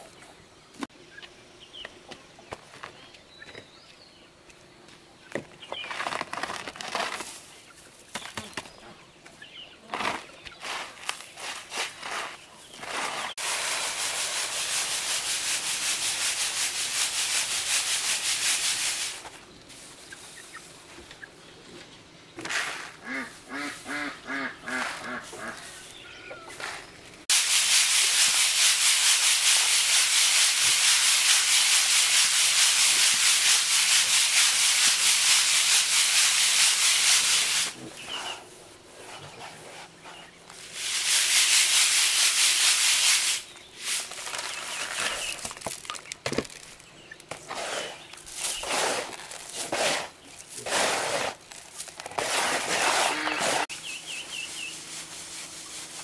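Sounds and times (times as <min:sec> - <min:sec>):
grits rattling in a bamboo sieve: 0:09.9 - 0:19.4, 0:27.3 - 0:37.8, 0:40.5 - 0:53.7
fowl calling: 0:23.0 - 0:26.6.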